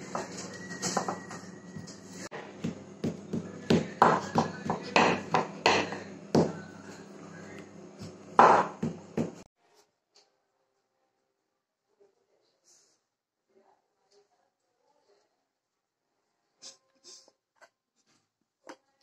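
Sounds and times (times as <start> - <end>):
rolling pin knocking on countertop: 2.4 - 6.6, 8.4 - 9.5.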